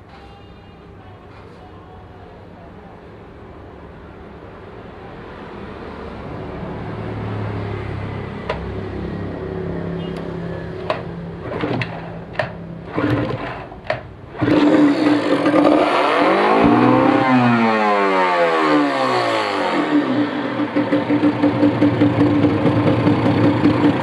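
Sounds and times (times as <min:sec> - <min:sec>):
outboard engine running: 0:11.4 - 0:15.7, 0:21.4 - 0:24.0.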